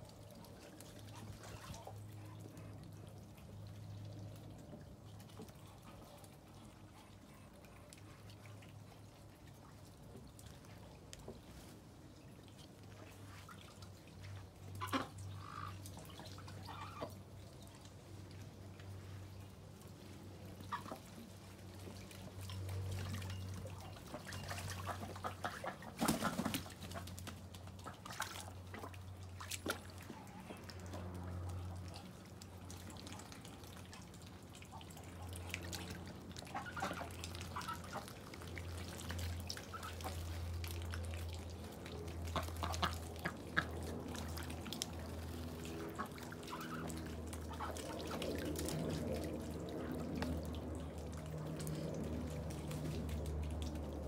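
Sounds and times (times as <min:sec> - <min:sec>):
rainwater dripping: 0:13.3 - 0:54.0
steady low rumble: 0:26.9 - 0:54.0.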